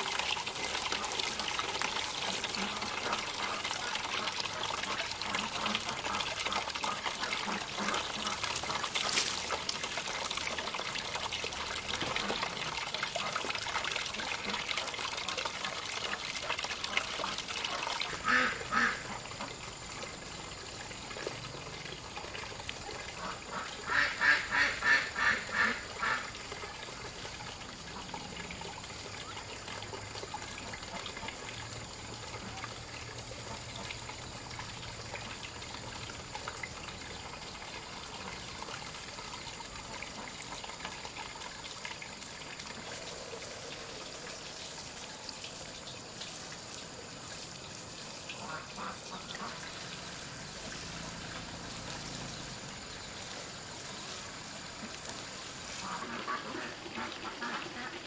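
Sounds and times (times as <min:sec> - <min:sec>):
water running: 0:00.0 - 0:58.0
ducks quacking: 0:02.4 - 0:09.5, 0:16.8 - 0:19.6, 0:23.2 - 0:26.3, 0:48.4 - 0:49.7, 0:55.7 - 0:58.0.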